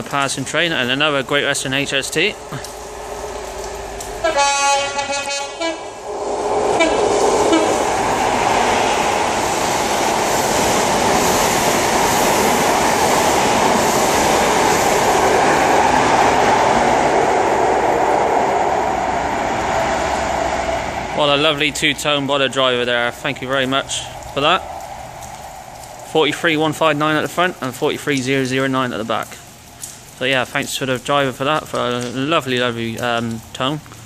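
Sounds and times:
train wheels rushing on rail: 0:00.0 - 0:28.0
two-tone train horn: 0:04.2 - 0:06.0, 0:06.8 - 0:07.8.

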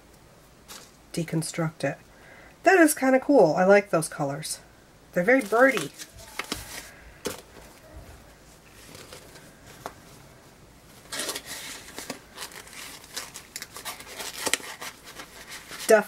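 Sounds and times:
bag crinkling and rustling: 0:05.4 - 0:10.2, 0:10.9 - 0:16.0.

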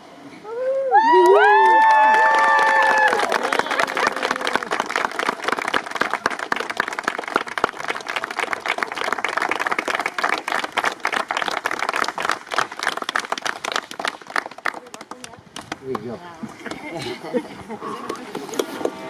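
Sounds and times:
crowd applauding: 0:01.0 - 0:16.2.

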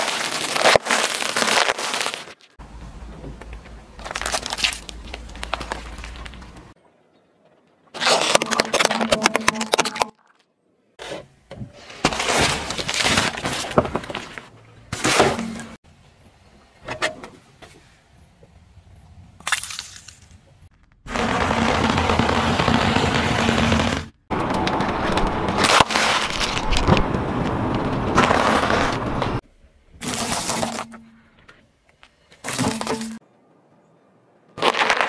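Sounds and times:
tyre crunching cereal: 0:00.0 - 0:02.6, 0:04.0 - 0:06.5, 0:08.0 - 0:10.1, 0:34.6 - 0:35.0
plastic cracking under tyre: 0:04.0 - 0:06.7, 0:08.0 - 0:10.1, 0:19.5 - 0:29.4.

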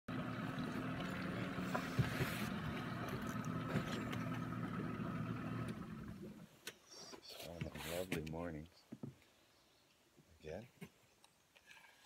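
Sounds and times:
outboard motor running: 0:00.1 - 0:06.5.

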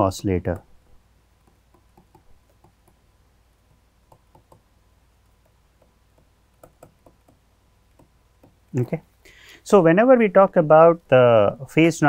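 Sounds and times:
stylus tapping on pen tablet: 0:01.4 - 0:08.7.

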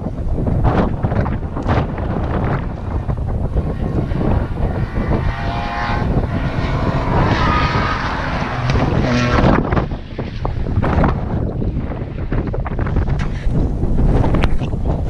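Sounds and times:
wind buffeting on microphone: 0:00.0 - 0:15.0
race car engine revving: 0:03.4 - 0:11.1.

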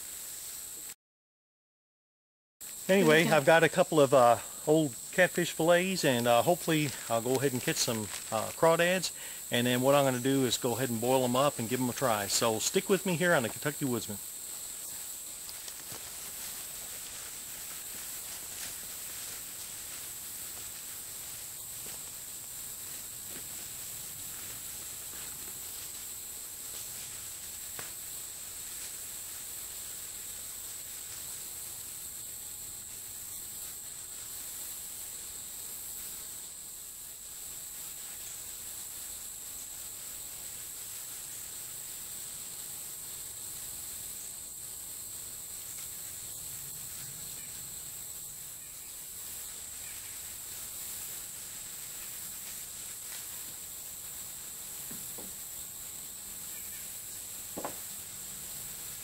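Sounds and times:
high-pitched insect drone: 0:02.7 - 0:59.0
faint knocks: 0:57.6 - 0:57.8.

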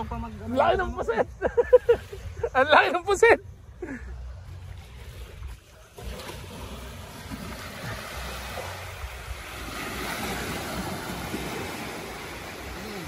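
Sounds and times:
sea water washing: 0:04.5 - 0:13.0.

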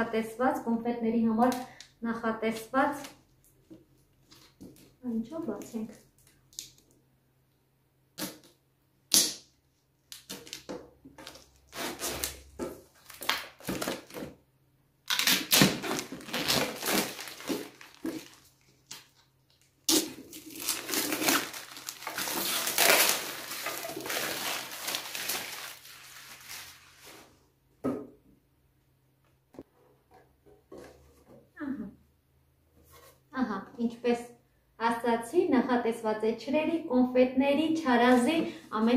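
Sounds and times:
plastic film crinkling and tearing: 0:11.2 - 0:14.2, 0:15.1 - 0:27.3.

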